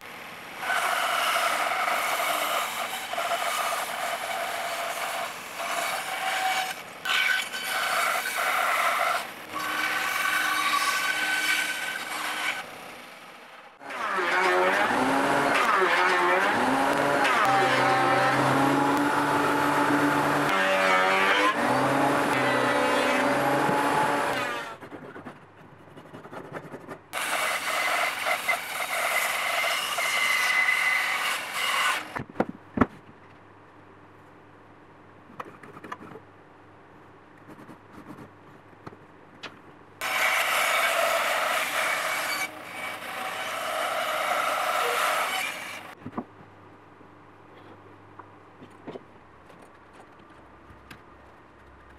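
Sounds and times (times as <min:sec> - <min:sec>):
band saw cutting wood: 0:00.6 - 0:12.7, 0:13.8 - 0:24.9, 0:27.2 - 0:32.2, 0:40.0 - 0:46.0
thickness planer running: 0:13.8 - 0:24.8.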